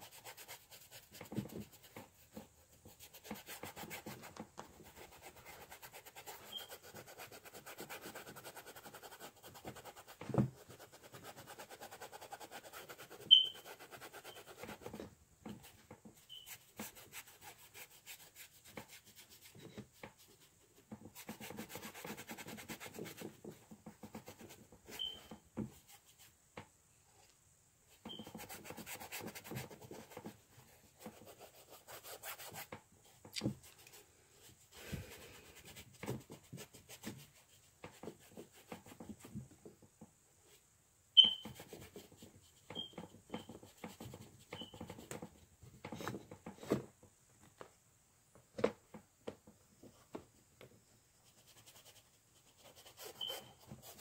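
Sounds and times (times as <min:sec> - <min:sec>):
paintbrush scrubbing on canvas: 0:00.0 - 0:15.0, 0:51.2 - 0:54.0.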